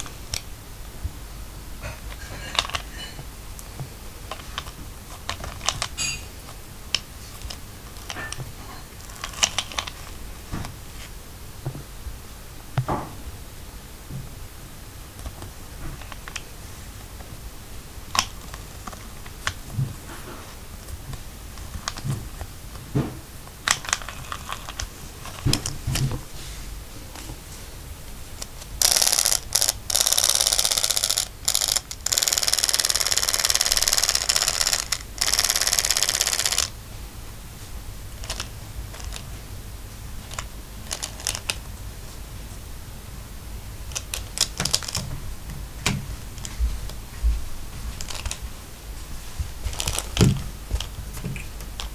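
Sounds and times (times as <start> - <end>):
motorized toy whirring: 28.8 - 36.7.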